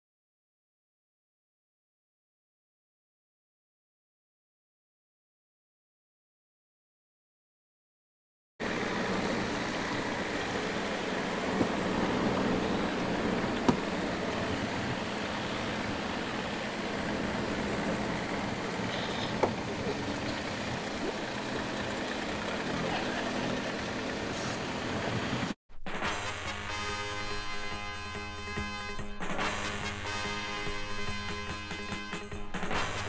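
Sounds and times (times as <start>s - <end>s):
low hum: 8.6s - 25.6s.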